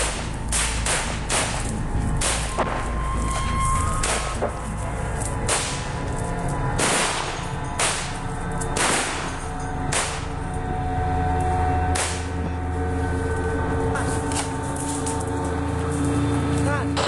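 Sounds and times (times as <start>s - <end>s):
gunshots echoing: 0.0s - 2.9s, 5.4s - 6.1s, 6.8s - 10.4s.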